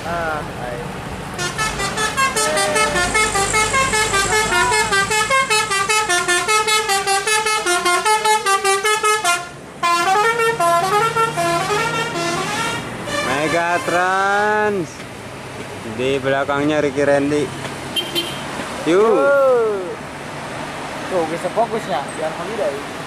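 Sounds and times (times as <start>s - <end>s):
bus engine humming: 0.0s - 23.0s
multi-tone air horn melody: 1.4s - 14.1s.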